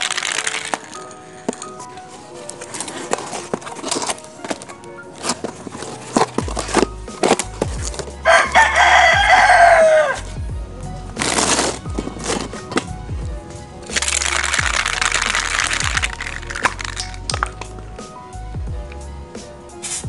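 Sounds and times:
rooster crowing: 8.2s - 10.3s.

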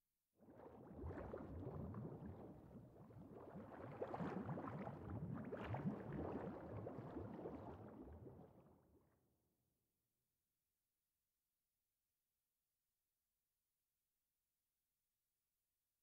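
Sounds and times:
water bubbling and gurgling: 0.4s - 9.0s.

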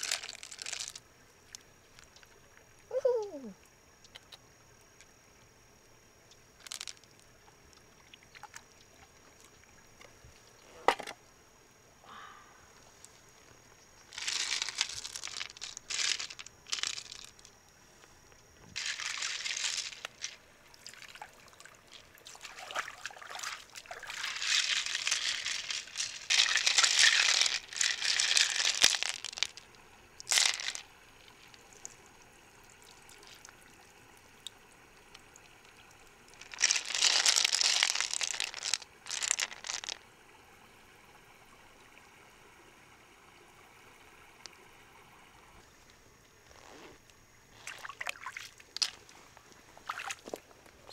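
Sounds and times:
water pouring and splashing: 0.0s - 2.2s, 14.0s - 17.5s, 18.7s - 32.0s, 34.4s - 40.0s, 47.5s - 50.9s.

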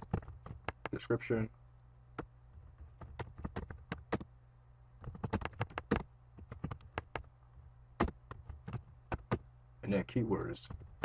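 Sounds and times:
keyboard typing: 0.0s - 1.0s, 2.2s - 4.3s, 5.0s - 7.3s, 8.0s - 9.4s.

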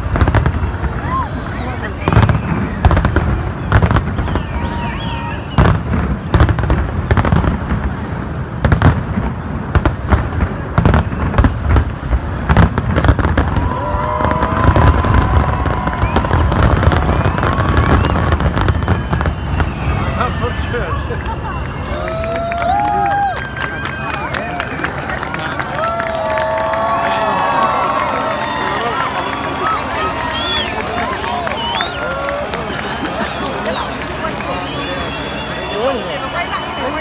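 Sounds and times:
fireworks whistling: 0.0s - 8.0s, 8.6s - 22.1s, 27.8s - 37.0s
fireworks bangs: 0.0s - 24.8s.

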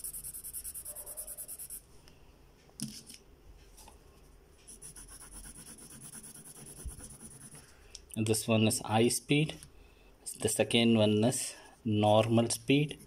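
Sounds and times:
pen shading on paper: 0.0s - 1.8s, 4.7s - 7.6s.

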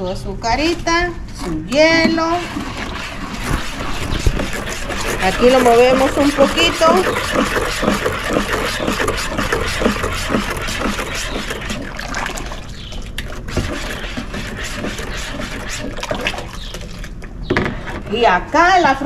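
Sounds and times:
liquid swishing in a pitcher: 1.8s - 18.4s.

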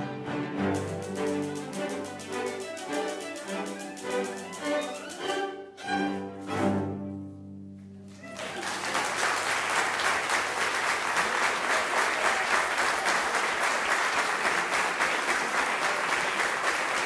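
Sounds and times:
audience clapping: 0.7s - 5.4s, 7.8s - 17.0s.

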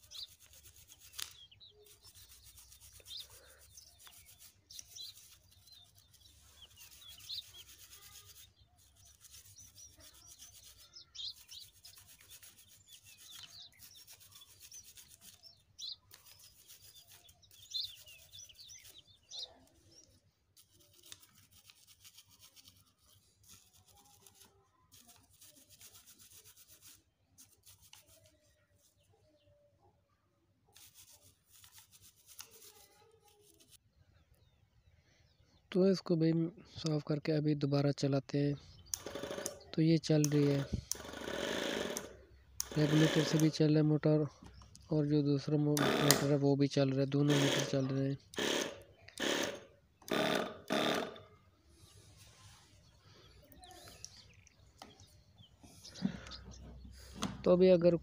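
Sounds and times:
toothbrush scrubbing metal: 0.0s - 28.4s, 30.8s - 33.8s, 38.8s - 43.6s.

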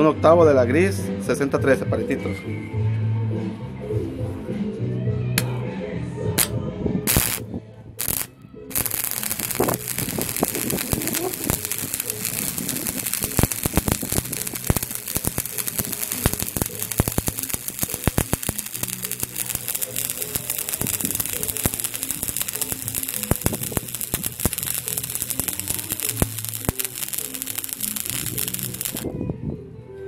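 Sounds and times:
background music: 0.0s - 30.0s
sharp welding pops: 7.1s - 7.4s, 8.0s - 29.1s
welding arc crackling and hissing: 7.1s - 7.4s, 8.0s - 29.1s.

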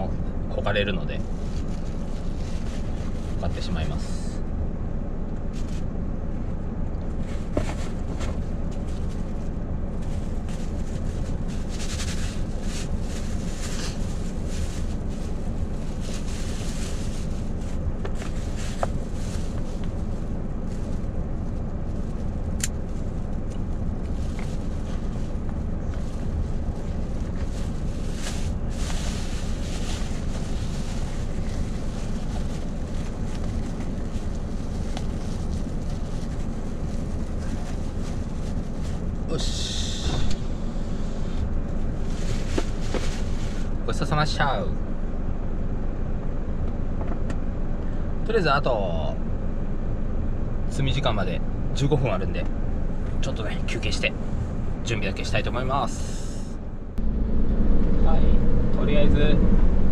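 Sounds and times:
truck engine idling: 0.0s - 48.3s
rustles: 1.2s - 3.8s, 5.4s - 6.0s, 7.0s - 43.8s.

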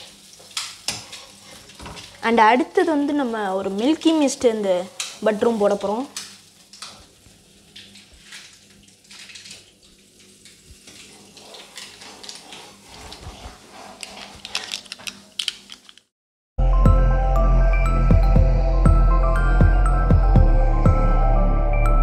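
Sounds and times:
butter sizzling in a wok: 0.0s - 7.7s
spatula scraping a pan: 0.8s - 1.8s, 11.3s - 14.7s.

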